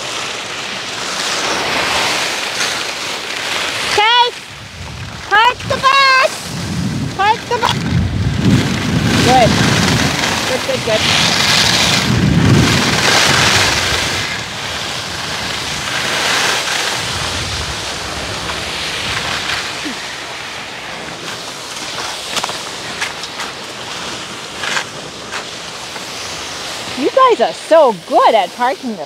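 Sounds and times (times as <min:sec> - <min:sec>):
wind rushing over microphone: 0:00.0 - 0:29.0
skis hissing on snow: 0:08.5 - 0:29.0.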